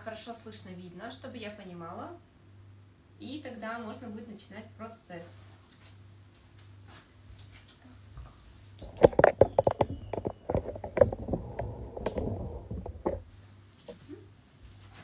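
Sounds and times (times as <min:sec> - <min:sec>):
phone handling knocks and rubbing: 0:08.8 - 0:13.3.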